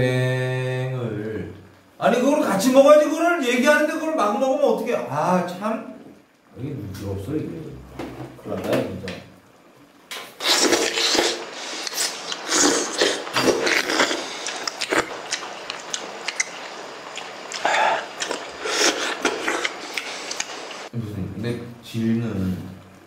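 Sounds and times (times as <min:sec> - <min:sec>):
people slurping soup: 0:10.2 - 0:15.4, 0:17.5 - 0:20.6.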